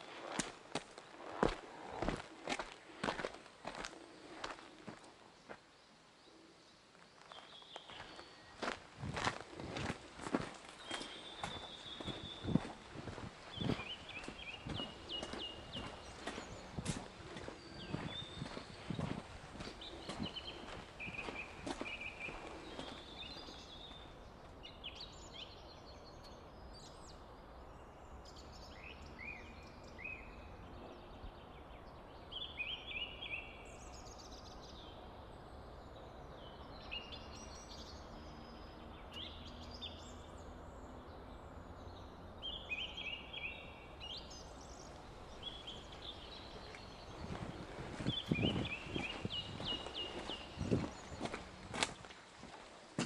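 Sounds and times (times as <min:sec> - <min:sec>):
footsteps: 0:00.0 - 0:05.6, 0:07.2 - 0:24.0, 0:46.5 - 0:53.0
songbirds singing: 0:00.0 - 0:53.0.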